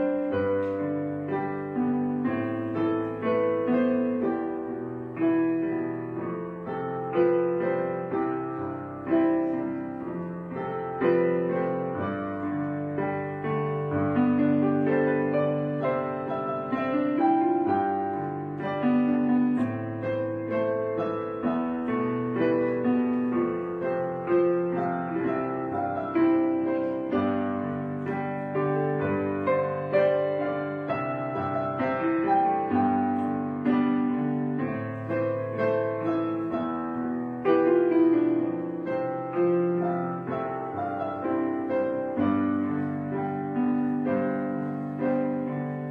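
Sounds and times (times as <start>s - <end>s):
piano music: 0.0s - 45.9s.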